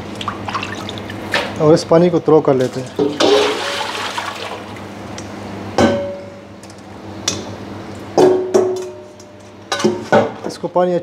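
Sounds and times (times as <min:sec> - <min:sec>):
water pouring into a sink: 0:00.2 - 0:01.2, 0:02.8 - 0:04.8.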